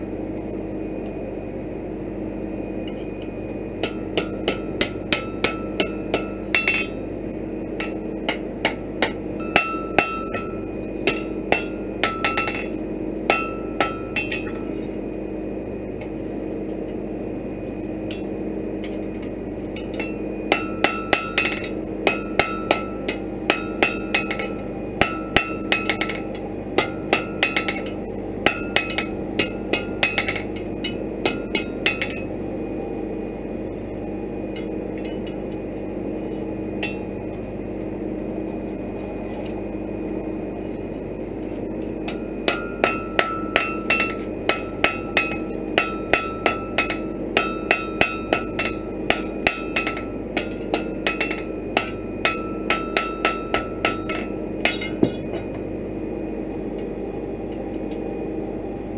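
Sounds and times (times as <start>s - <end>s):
hammer striking iron on anvil: 3.8s - 7.2s, 7.8s - 14.9s, 18.1s - 32.5s, 34.6s - 35.4s, 36.8s - 37.2s, 42.0s - 55.7s.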